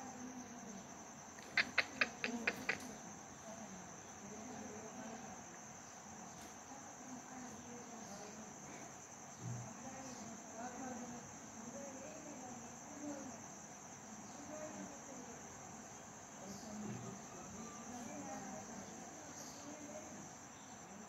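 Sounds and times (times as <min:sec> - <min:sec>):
faint distant voices: 0:00.0 - 0:21.0
high-pitched insect chirring: 0:01.3 - 0:03.4.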